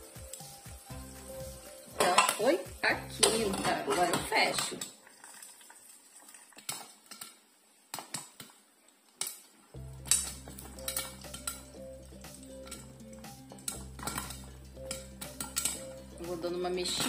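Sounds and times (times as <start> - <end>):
background music: 0.0 - 4.7, 9.8 - 17.0
popcorn popping in metal pot: 0.0 - 5.0, 9.2 - 17.0.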